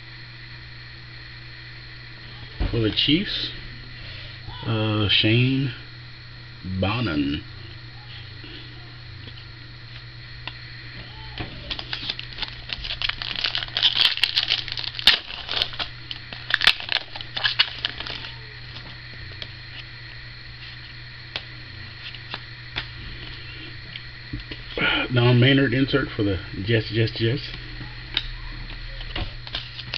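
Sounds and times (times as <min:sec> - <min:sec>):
low electrical hum: 0:00.0 - 0:29.9
cards being handled: 0:11.4 - 0:19.9, 0:29.4 - 0:29.9
foil pack tearing and crinkling: 0:11.6 - 0:19.5, 0:29.4 - 0:29.9.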